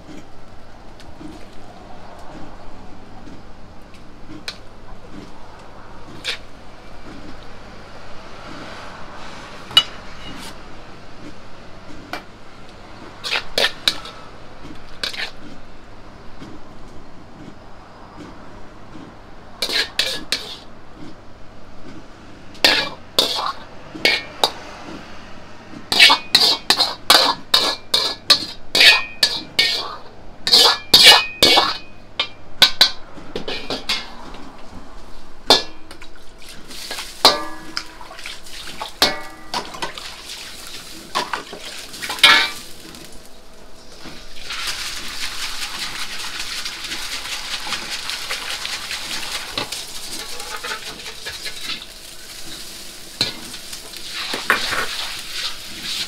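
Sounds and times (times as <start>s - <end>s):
hot oil sizzling: 19.6s - 20.7s, 22.6s - 24.7s, 25.9s - 31.9s, 35.5s - 56.0s
metal ladle clanking against wok: 22.6s - 24.7s, 25.9s - 34.3s, 35.5s - 36.1s, 36.9s - 38.2s, 38.8s - 40.1s, 41.1s - 43.0s.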